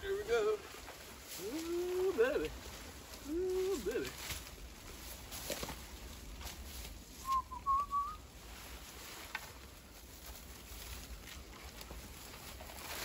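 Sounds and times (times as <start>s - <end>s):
whistled phrase: 7.2s - 8.2s.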